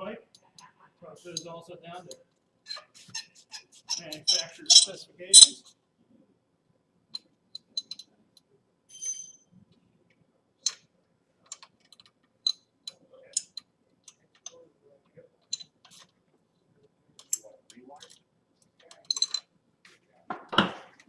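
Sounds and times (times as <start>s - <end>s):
metallic clink: 4.0s - 5.6s, 19.0s - 19.4s
socket wrench clicking: 4.7s - 5.5s.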